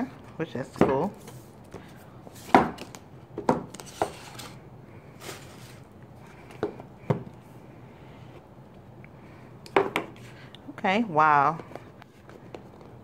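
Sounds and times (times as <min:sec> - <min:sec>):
cardboard sliding: 0:03.7 - 0:04.6, 0:05.2 - 0:05.9.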